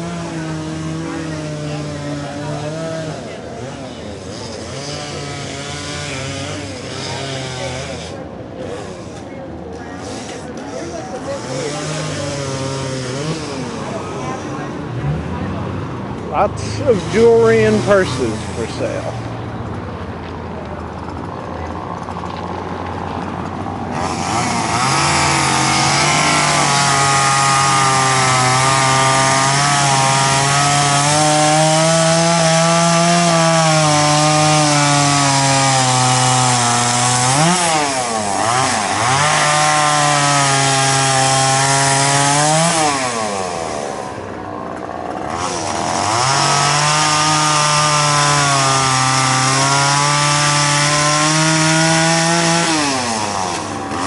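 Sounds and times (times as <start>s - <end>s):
chainsaw cutting wood: 0.0s - 14.7s, 16.4s - 19.2s, 23.4s - 54.0s.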